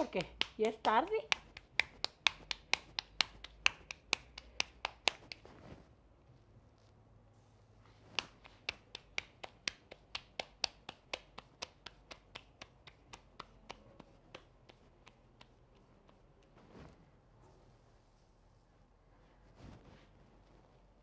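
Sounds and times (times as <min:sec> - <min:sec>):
hands patting dough: 0:00.0 - 0:05.8, 0:08.0 - 0:17.0.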